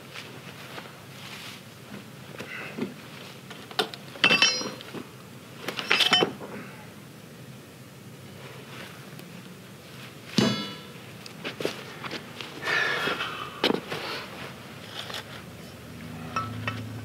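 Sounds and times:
pry bar clanking on steel track: 16.3s - 16.9s.

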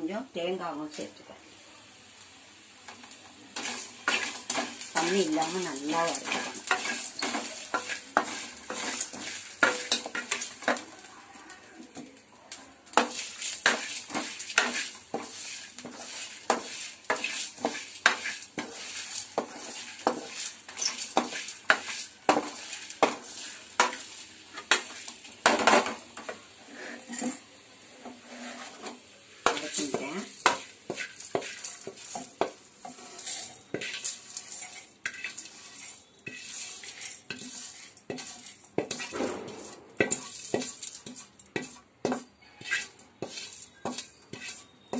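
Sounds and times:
spoon stirring and scraping in pan: 2.8s - 44.9s.

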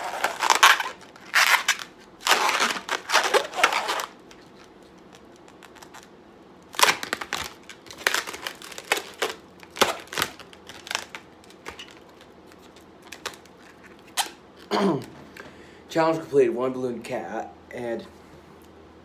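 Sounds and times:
latex balloon squeaks and rubs: 0.0s - 6.1s, 13.6s - 14.4s.

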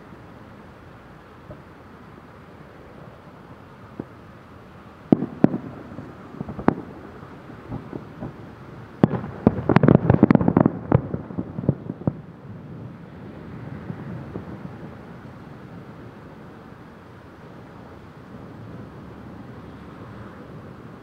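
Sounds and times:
firework shells bursting: 5.1s - 12.0s.

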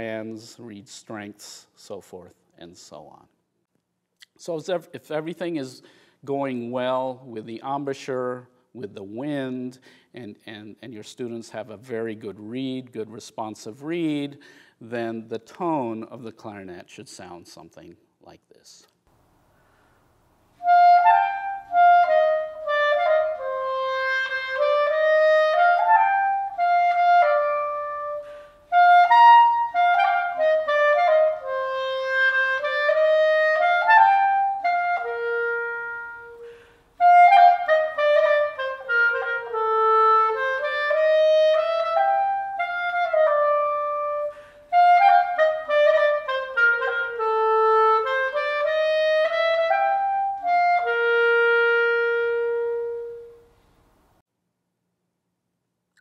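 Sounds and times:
clarinet melody: 20.6s - 53.7s.

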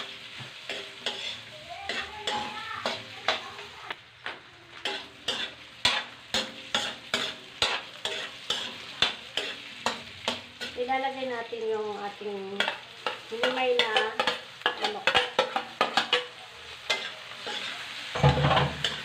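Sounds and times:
food sizzling in a wok: 0.0s - 19.0s
utensil knocking on metal pan: 18.2s - 18.8s.

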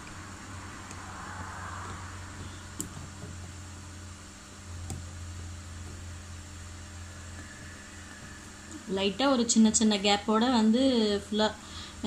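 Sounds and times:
room hum and hiss: 0.0s - 12.0s
needle clicking on plastic plate: 0.8s - 3.6s.

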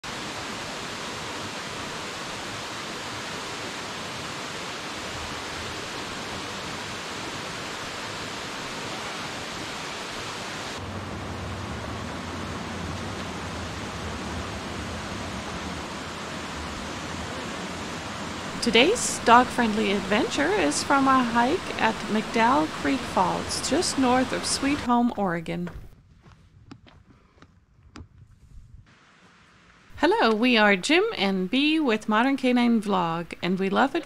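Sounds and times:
creek water rushing over rocks: 11.6s - 24.9s.

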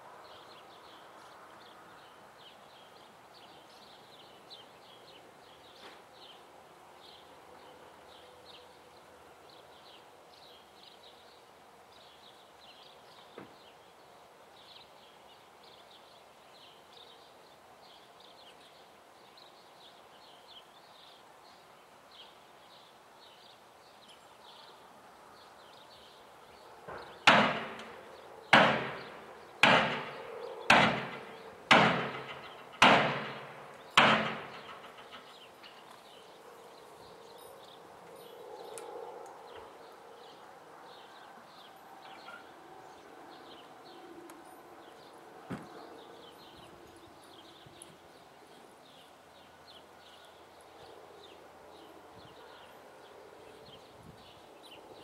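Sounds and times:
loud ringing bangs: 26.9s - 35.4s.

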